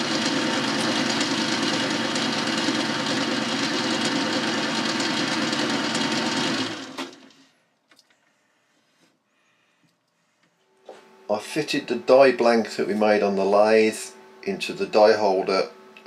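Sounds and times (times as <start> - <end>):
lathe cutting metal: 0.0 - 6.9.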